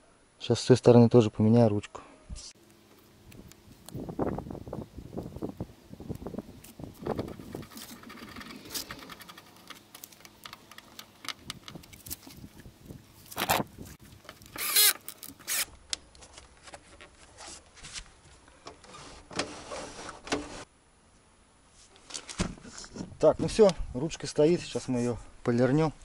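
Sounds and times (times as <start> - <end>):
clicks and knocks of handling tools: 7.1 - 12.4
cordless drill driving screws: 14.5 - 15.7.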